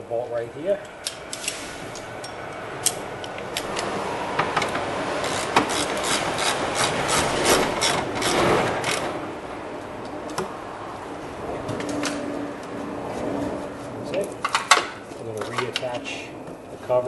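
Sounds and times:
ratchet clicking: 5.2 - 9.0.

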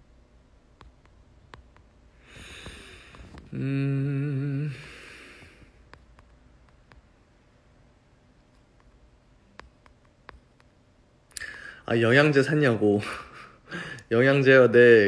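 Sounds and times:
man exhaling: 2.2 - 5.8, 13.7 - 14.1
man humming hmm: 2.5 - 5.7.

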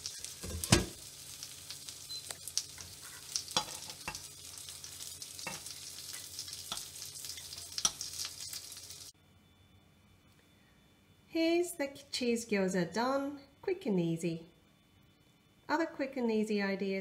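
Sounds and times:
dumplings sizzling in a frying pan: 0.0 - 9.2
tongs clicking against a pan: 2.2 - 4.3, 5.4 - 8.6.

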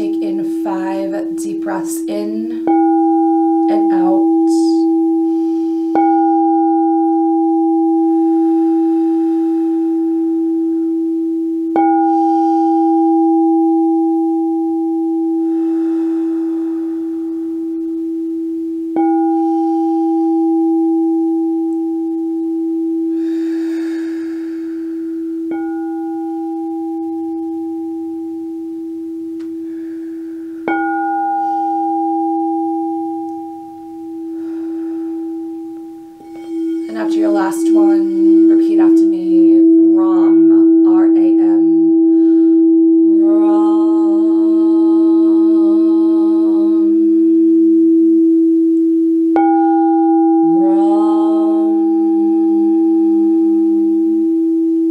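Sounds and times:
singing bowl ringing: 0.0 - 54.9
soft breathy exhales: 23.2 - 25.2.

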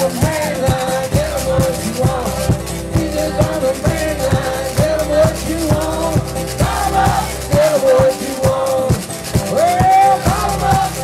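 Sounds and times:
slide acoustic guitar blues: 0.0 - 11.0.

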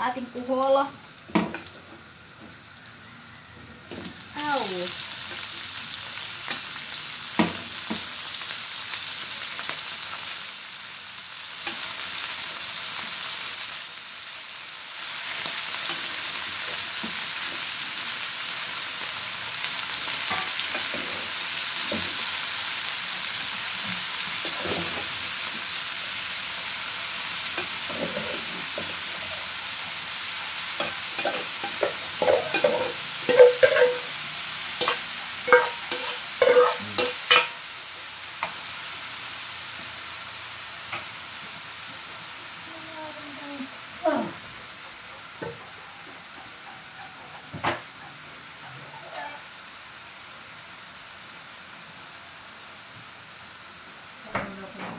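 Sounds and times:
snails sizzling in hot oil: 0.0 - 54.9
ladle clattering in wok: 31.2 - 34.2, 34.8 - 37.6.

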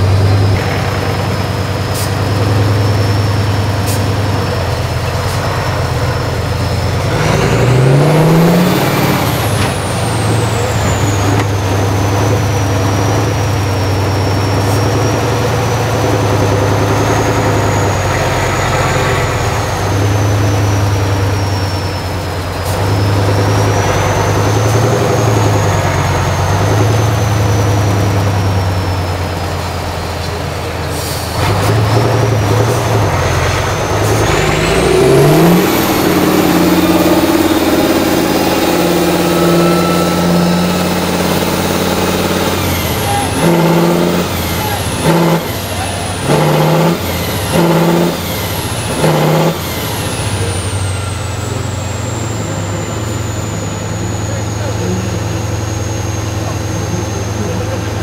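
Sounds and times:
truck diesel engine under load: 0.0 - 58.0
high whistle: 33.8 - 57.8.

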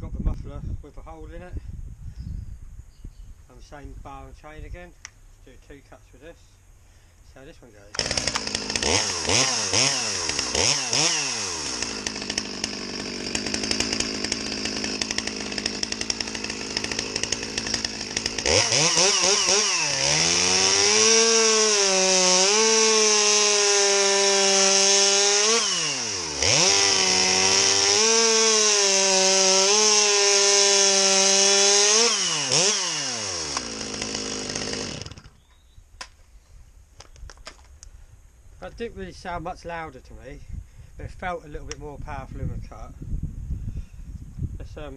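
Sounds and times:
chainsaw cutting log: 7.9 - 35.5.

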